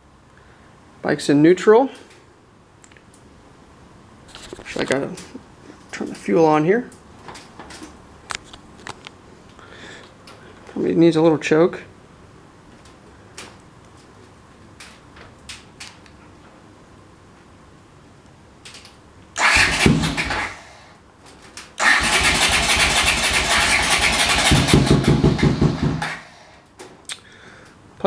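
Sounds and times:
starter motor cranking: 19.4s - 20.7s, 21.8s - 26.3s
motorcycle engine running: 22.0s - 26.2s.

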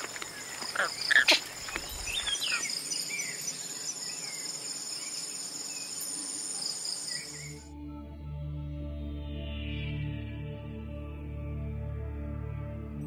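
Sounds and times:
bird calls: 0.0s - 7.6s
crickets chirring: 0.0s - 7.6s.

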